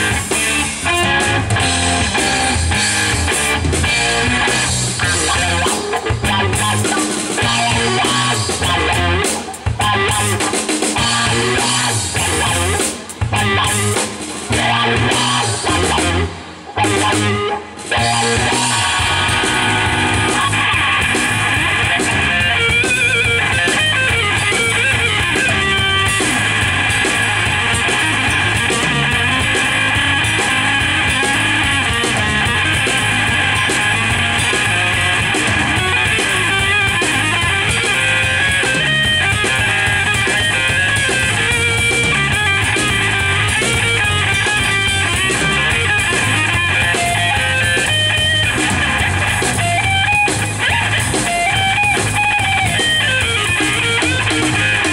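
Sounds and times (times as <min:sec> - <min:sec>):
drum kit: 0:00.0 - 0:54.9
electric bass: 0:00.0 - 0:54.9
electric guitar: 0:00.0 - 0:54.9.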